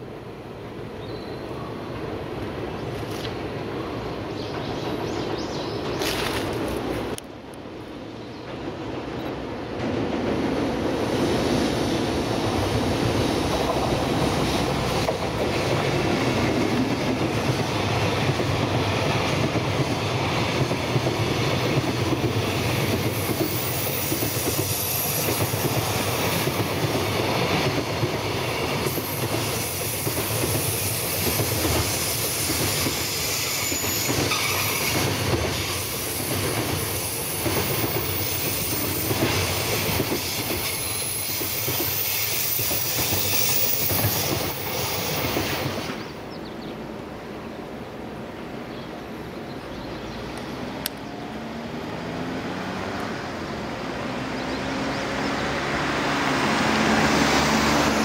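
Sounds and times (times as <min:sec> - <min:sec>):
electric locomotive passing: 0:00.0 - 0:58.0
train wheels clacking over rail joints: 0:13.4 - 0:46.1.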